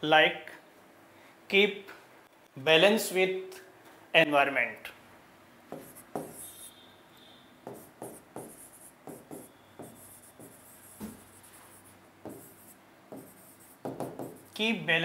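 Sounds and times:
pen scratching on board: 0:05.7 - 0:06.7, 0:07.7 - 0:14.6.

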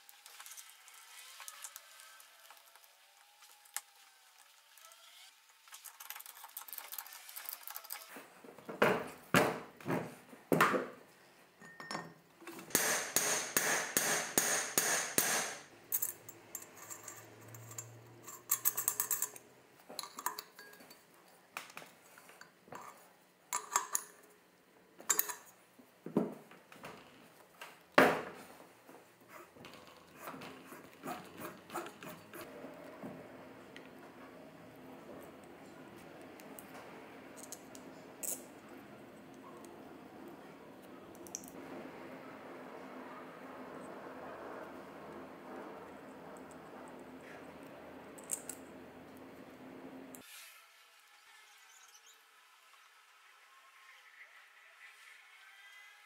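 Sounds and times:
metal tools clinking: 0:15.9 - 0:21.1.

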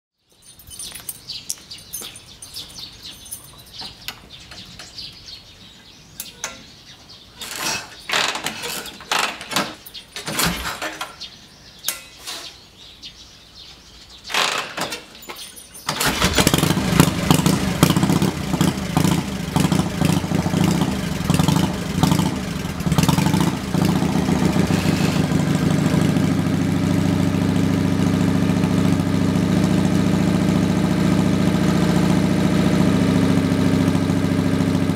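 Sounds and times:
motorcycle engine idling: 0:16.0 - 0:34.9.

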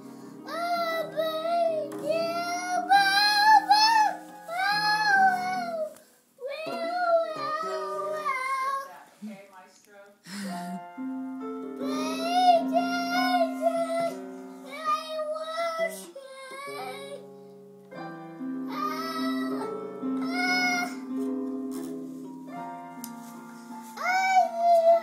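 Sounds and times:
sustained backing notes: 0:00.0 - 0:09.4, 0:10.3 - 0:25.0
boy singing in a high voice: 0:00.5 - 0:08.9, 0:11.8 - 0:17.2, 0:18.7 - 0:21.0, 0:24.0 - 0:25.0.

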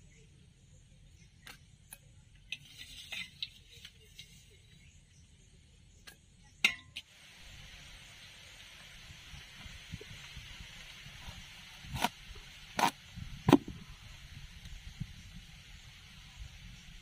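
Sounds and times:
steady hiss: 0:07.0 - 0:17.0.

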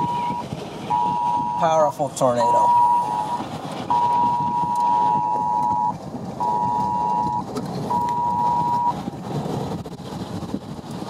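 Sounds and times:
harsh two-pitch alert tone: 0:00.0 - 0:01.6, 0:02.6 - 0:08.9
vehicle noise: 0:00.0 - 0:11.0
wind noise: 0:00.0 - 0:11.0.

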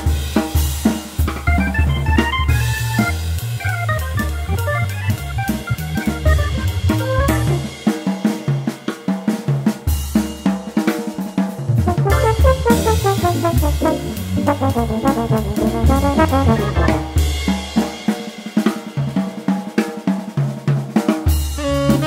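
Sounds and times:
drum kit: 0:00.0 - 0:22.0
organ bass notes: 0:01.5 - 0:07.7, 0:11.9 - 0:17.4
trombone and saxophone melody: 0:02.5 - 0:07.7, 0:11.8 - 0:17.4, 0:21.6 - 0:22.0.

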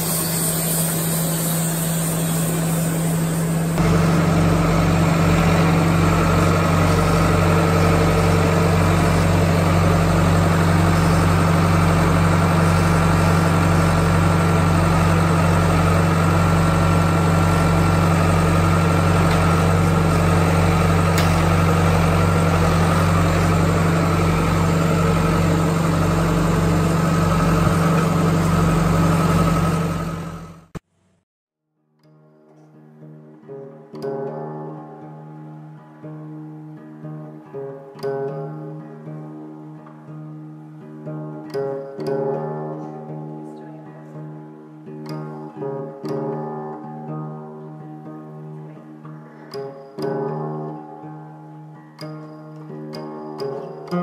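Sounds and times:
engine humming: 0:00.0 - 0:30.8.

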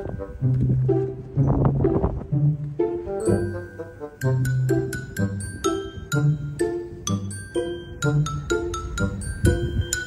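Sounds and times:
low bass line: 0:00.0 - 0:10.0.

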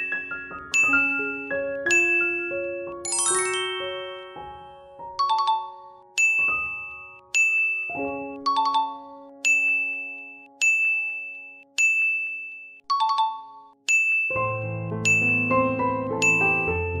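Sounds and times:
glockenspiel-like phrases: 0:00.0 - 0:15.6, 0:16.2 - 0:16.9
bright bell-like ding: 0:15.1 - 0:15.4, 0:16.2 - 0:16.7.

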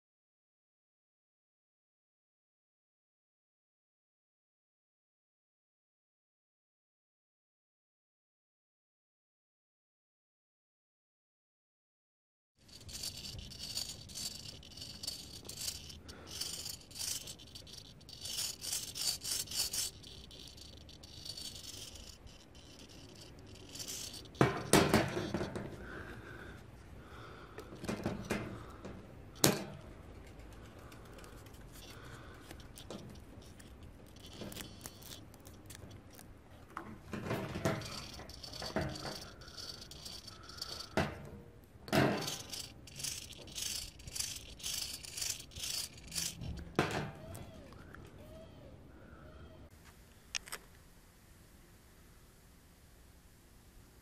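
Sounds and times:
plastic and metal rattles and clicks: 0:12.7 - 0:25.8, 0:27.6 - 0:41.3, 0:41.9 - 0:47.3.

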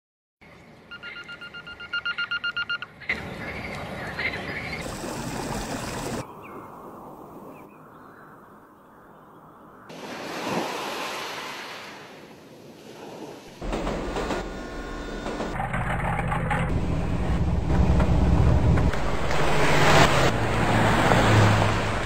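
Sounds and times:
stream running over stones: 0:04.8 - 0:06.2
wave surging up beach: 0:09.9 - 0:13.6, 0:19.0 - 0:22.0
freight train rumbling past: 0:13.6 - 0:15.6, 0:16.7 - 0:22.0.

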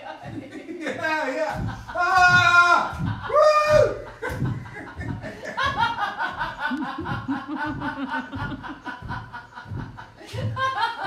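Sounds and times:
rhythmic laughter: 0:00.0 - 0:11.0.

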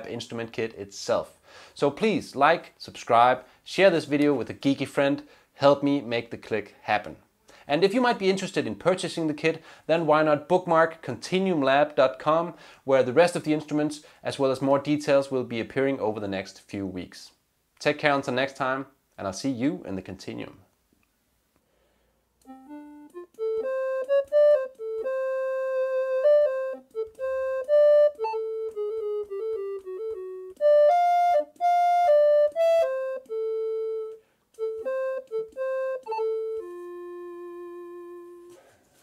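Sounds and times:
synthesized ocarina melody: 0:22.5 - 0:38.6.

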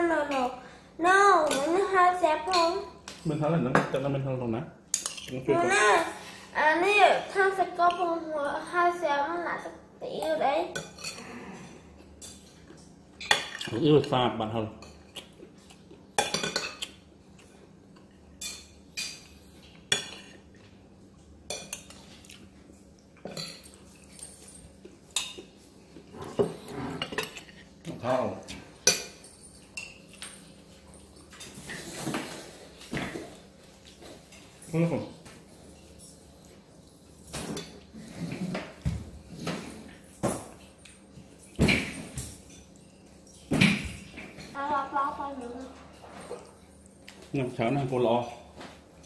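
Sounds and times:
metal spoon clinking on plates: 0:04.9 - 0:05.4, 0:16.2 - 0:16.9.

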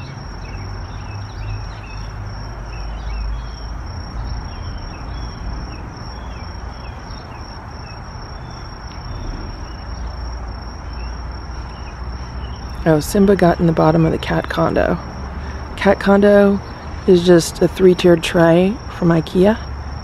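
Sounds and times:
bird chirps: 0:00.0 - 0:10.2
high-pitched insect trill: 0:00.0 - 0:20.0
low rumble: 0:08.1 - 0:12.9.

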